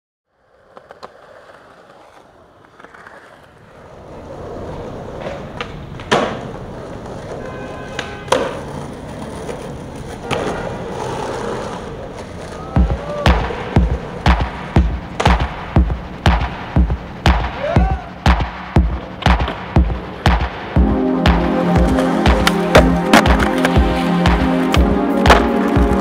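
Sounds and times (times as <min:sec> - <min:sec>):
skateboard wheels rolling on concrete: 0:00.3 - 0:26.0
skateboard impacts: 0:00.4 - 0:26.0
music with heavy bass beat: 0:12.8 - 0:26.0.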